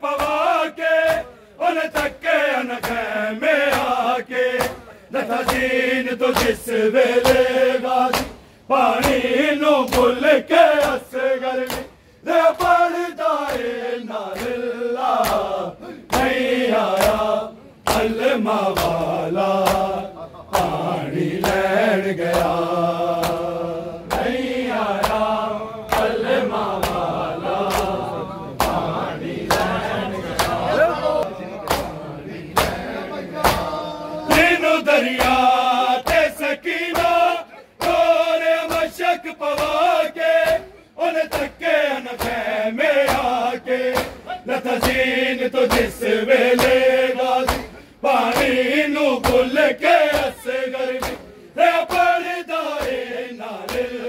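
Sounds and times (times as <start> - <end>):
men chanting a lament: 0.0 - 54.0
hands slapping bare chests: 2.8 - 5.7, 6.3 - 6.6, 7.2 - 8.4, 9.0 - 9.3, 9.9 - 10.2, 10.8 - 12.8, 13.4 - 21.7, 22.3 - 25.3, 25.9 - 28.0, 28.6 - 28.9, 31.7 - 32.0, 32.6 - 32.8, 33.4 - 33.7, 34.3 - 40.6, 41.2 - 45.1, 45.7 - 54.0.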